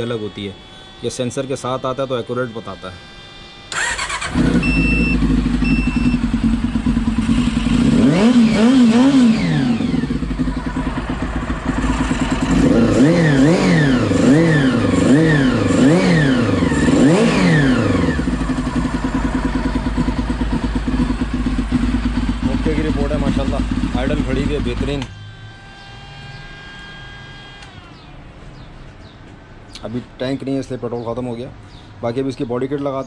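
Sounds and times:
motorcycle engine revving: 0:00.0 - 0:28.7
short electronic beeps: 0:04.5 - 0:06.8.

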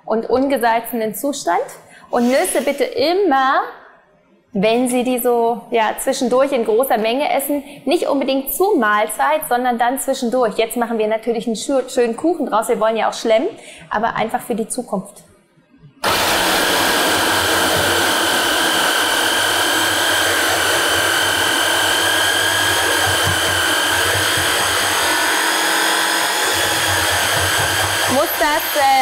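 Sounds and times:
stick blender motor whine: 0:16.0 - 0:29.0.

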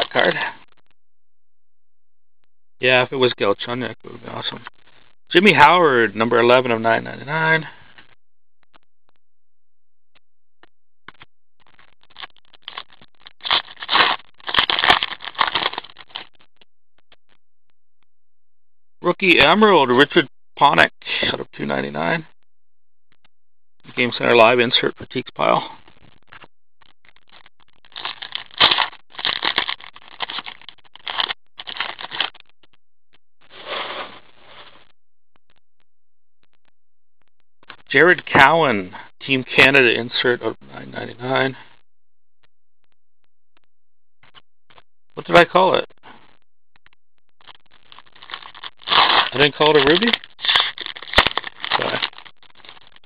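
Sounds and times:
foil wrapper crinkling and tearing: 0:12.0 - 0:16.4, 0:27.8 - 0:32.4, 0:47.4 - 0:53.0
cards and gloves rustling: 0:12.2 - 0:16.3, 0:27.9 - 0:32.4, 0:47.4 - 0:52.9.

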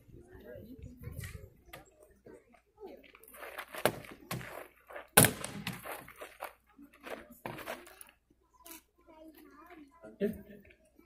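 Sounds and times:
weapons thunking on wooden shields: 0:05.2 - 0:05.9.

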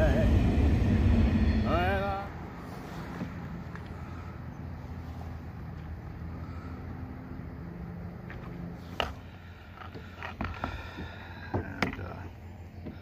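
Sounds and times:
low rumble: 0:00.0 - 0:05.0.

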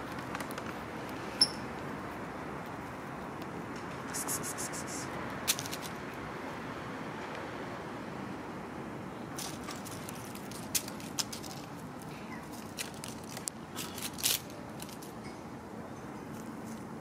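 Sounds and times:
dry leaves crackling: 0:09.4 - 0:15.2.

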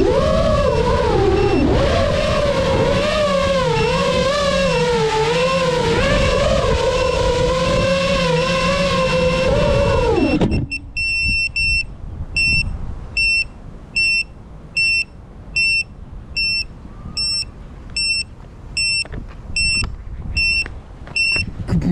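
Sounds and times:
drone motors whining: 0:00.0 - 0:12.6
short high beeps: 0:09.8 - 0:19.8, 0:20.4 - 0:21.4.

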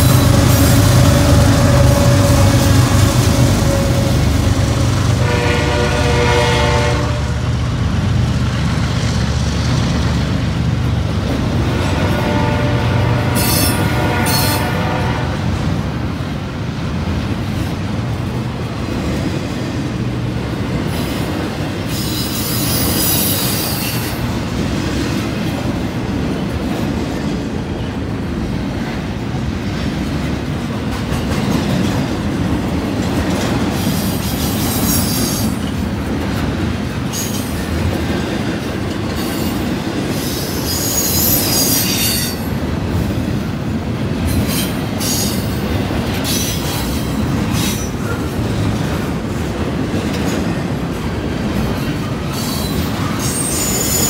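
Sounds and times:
train wheels rumbling on rail: 0:00.0 - 0:54.0
wheel squeal: 0:52.3 - 0:54.0.

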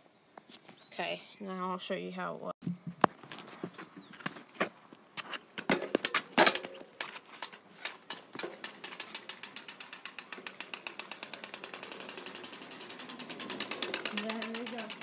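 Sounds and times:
card clicking on bicycle spokes: 0:05.0 - 0:15.0.

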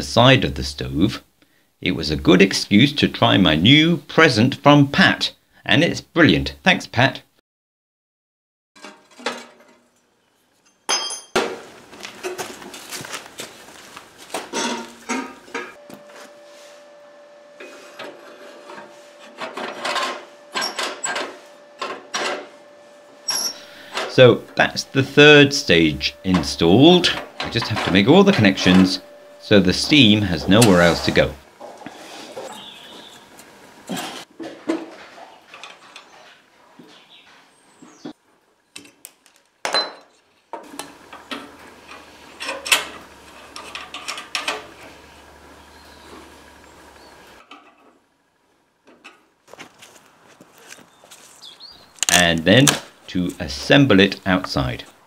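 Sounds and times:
faint steady hum: 0:11.6 - 0:34.3
metal scraping and rubbing: 0:14.4 - 0:32.6, 0:41.2 - 0:45.1
spanner clinking on metal fittings: 0:19.5 - 0:21.2, 0:23.3 - 0:24.1, 0:40.8 - 0:44.7.

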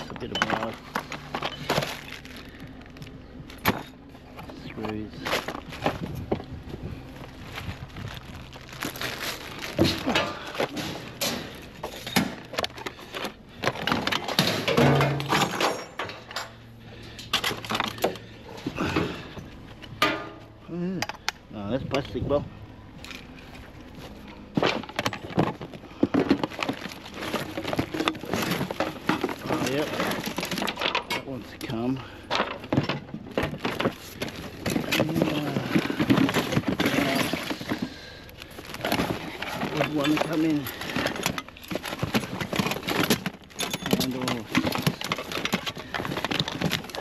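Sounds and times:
plastic rustling: 0:00.0 - 0:03.6, 0:04.4 - 0:15.8, 0:23.0 - 0:47.0
items knocking and clattering: 0:00.0 - 0:22.2, 0:23.0 - 0:47.0
scrap metal clinking: 0:09.7 - 0:20.5, 0:38.6 - 0:47.0.

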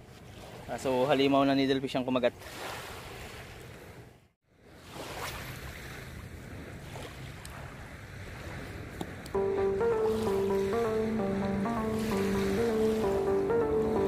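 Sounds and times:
background music: 0:09.4 - 0:14.0.

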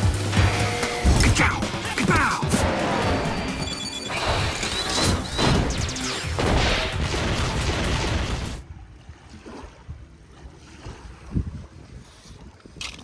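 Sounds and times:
action film music: 0:00.0 - 0:08.6
explosions: 0:04.1 - 0:08.6
wind noise on microphone: 0:10.8 - 0:13.0.

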